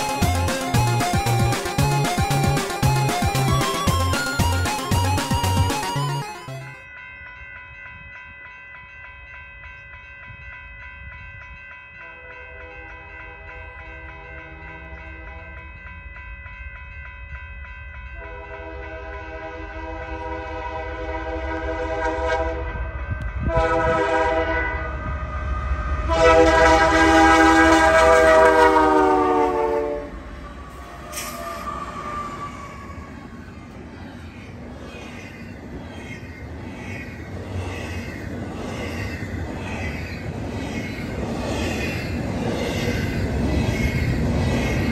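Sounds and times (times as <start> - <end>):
locomotive air horn blasts: 18.2 - 30.3.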